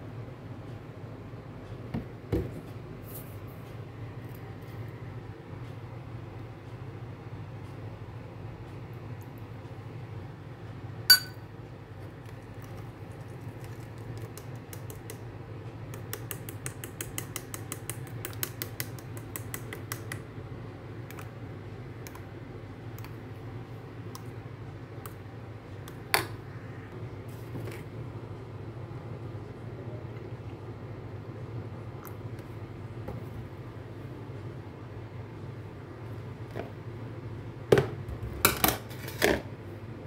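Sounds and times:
steady low hum: 0:00.0 - 0:40.0
spoon clinking against bowl: 0:11.1 - 0:11.4.

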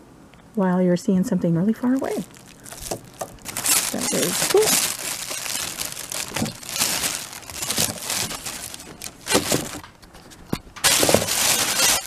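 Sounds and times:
plastic bag crinkling: 0:01.8 - 0:10.1, 0:10.8 - 0:12.0.

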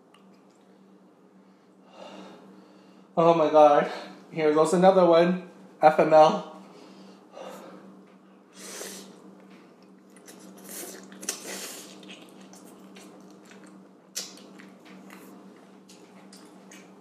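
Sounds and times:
chewing: 0:09.8 - 0:17.0.

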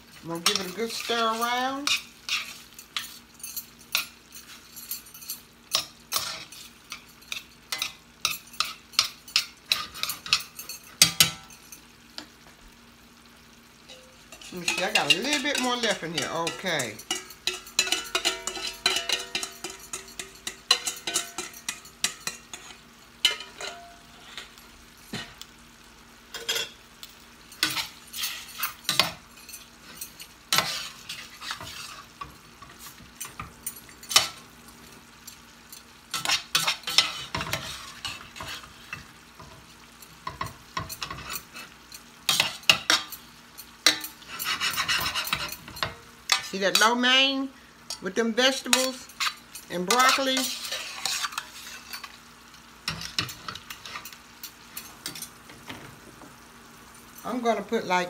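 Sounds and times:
food sizzling in pan: 0:00.0 - 0:58.0
metal spoon scraping saucepan: 0:00.3 - 0:11.3, 0:13.9 - 0:24.6, 0:27.6 - 0:34.4, 0:36.1 - 0:39.1, 0:43.8 - 0:46.9, 0:47.9 - 0:52.2.

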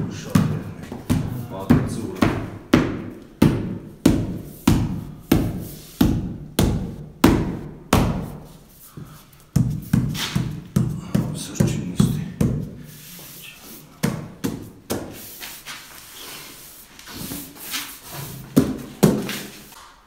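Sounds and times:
fists pounding on a panel: 0:00.3 - 0:08.5, 0:09.6 - 0:12.8, 0:14.0 - 0:15.1.

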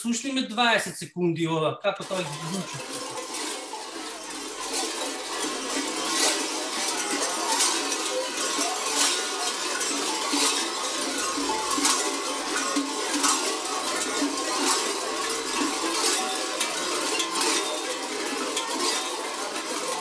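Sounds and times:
large sheep bells clanging: 0:02.0 - 0:20.0.

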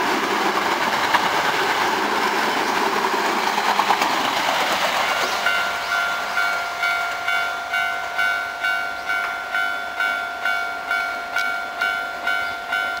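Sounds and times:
level-crossing warning bell ringing: 0:05.4 - 0:13.0.

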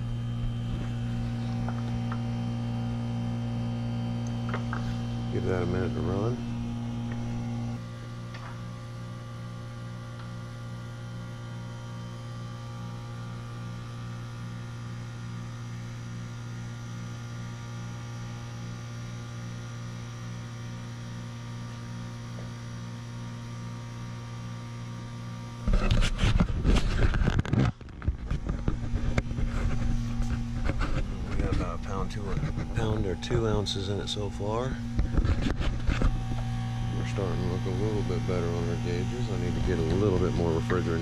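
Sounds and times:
heat pump humming: 0:00.0 - 0:41.0
camera rustling and knocking: 0:25.7 - 0:32.8, 0:34.9 - 0:36.6.

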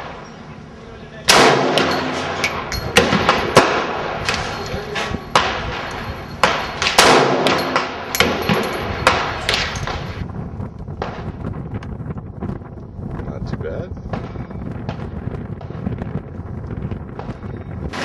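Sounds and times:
loud rifle shot with echo: 0:01.3 - 0:04.5, 0:05.3 - 0:10.2
sharp gunshots: 0:01.3 - 0:10.2.

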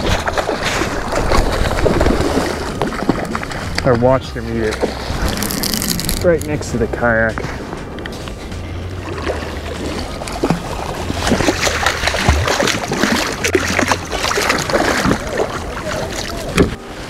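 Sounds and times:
fish splashing at surface: 0:09.1 - 0:16.6.

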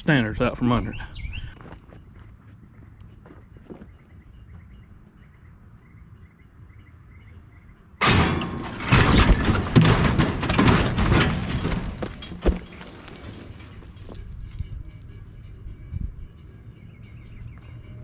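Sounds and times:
logs tumbling with heavy thuds: 0:08.0 - 0:14.2.

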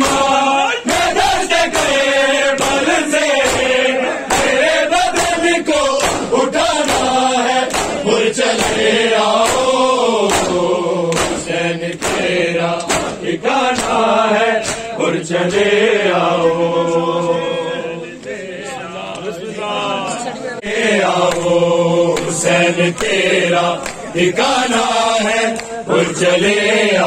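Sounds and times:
hands slapping chests: 0:00.0 - 0:15.0, 0:22.1 - 0:23.2, 0:23.8 - 0:24.9
men chanting together: 0:00.0 - 0:27.0.

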